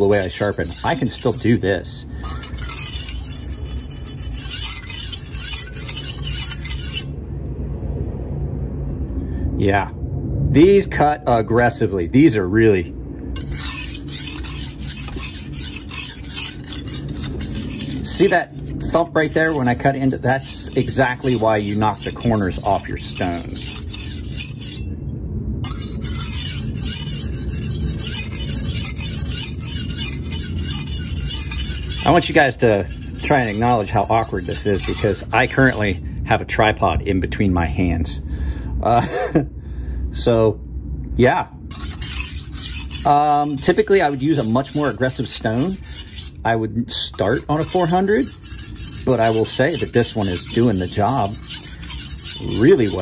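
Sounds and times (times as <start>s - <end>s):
knife rasping on water stone: 0.0s - 7.2s, 13.4s - 24.9s, 25.6s - 36.0s, 41.7s - 53.0s
steady low hum: 0.0s - 53.0s.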